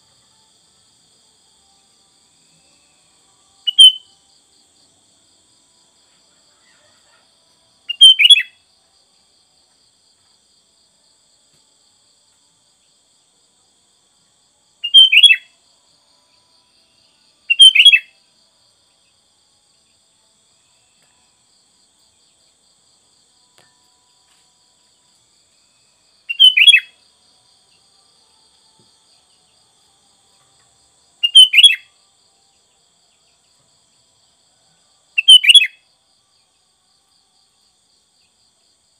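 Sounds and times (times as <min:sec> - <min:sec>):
bird chirping calls: 0:26.3 - 0:26.9, 0:31.2 - 0:31.8.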